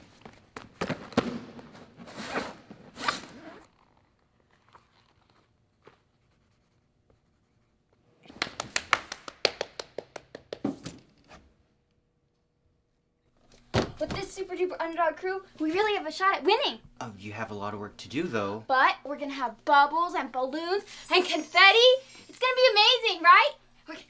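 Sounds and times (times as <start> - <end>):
suitcase rustling and zipping: 1.7 - 5.6
pen scribbling in a notebook: 5.9 - 7.8.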